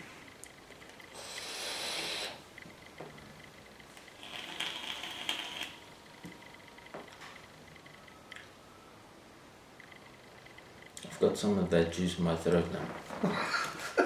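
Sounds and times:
exhaling vapour: 1.1s - 2.5s
vape airflow hiss and crackle: 1.1s - 2.5s, 4.2s - 5.8s.

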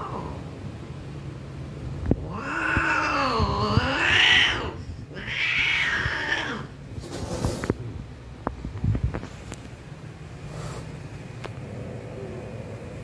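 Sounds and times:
cat yowling: 2.3s - 6.7s.

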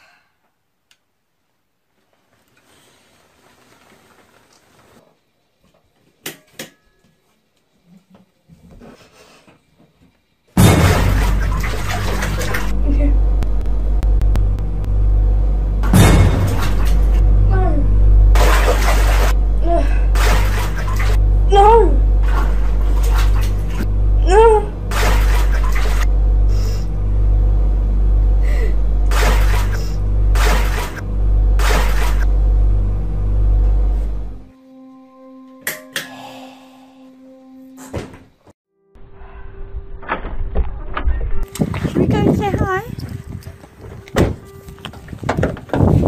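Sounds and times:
loud steady low hum: 10.6s - 35.4s
water gushing into bathtub: 10.8s - 12.7s, 18.4s - 19.4s, 20.2s - 21.2s, 24.9s - 26.0s, 29.1s - 29.8s
girl wailing: 21.5s - 22.0s, 24.2s - 24.8s
girl sobbing: 24.2s - 24.8s.

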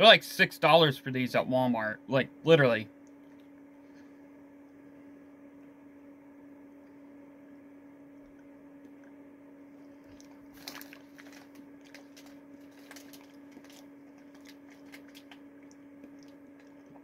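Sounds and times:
steady low hum: 0.0s - 17.0s
plastic packaging crinkling: 10.0s - 16.8s.

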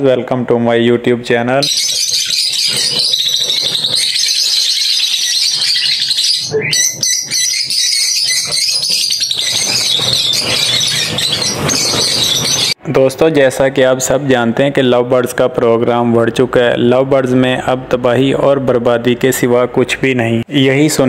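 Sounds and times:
small birds chirping: 1.6s - 12.8s.

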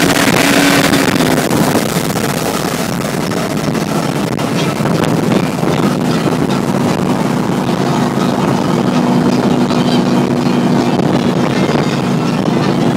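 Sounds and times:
car engine cruising: 0.0s - 12.9s.

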